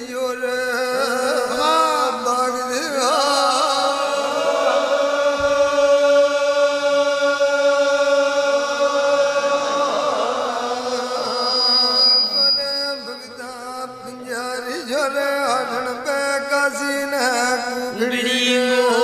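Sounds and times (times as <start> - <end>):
person chanting a long note: 3.1 - 14.6.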